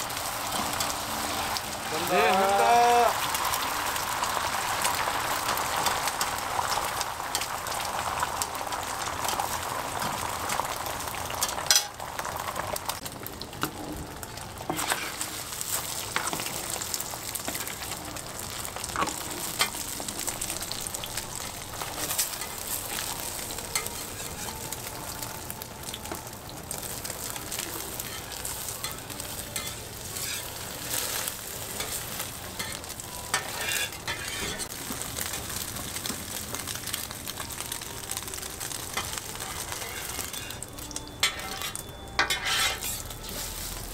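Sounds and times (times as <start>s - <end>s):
egg sizzling on a griddle: 0.0s - 43.9s
metal spatula scraping and clicking: 14.7s - 15.3s, 29.6s - 31.2s, 32.6s - 34.7s, 41.2s - 43.6s.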